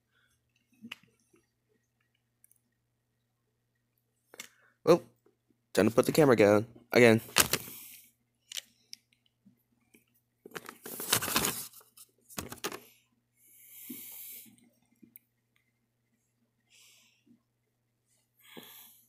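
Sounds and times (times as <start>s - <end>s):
hands rustling and knocking objects: 7.2s - 7.8s.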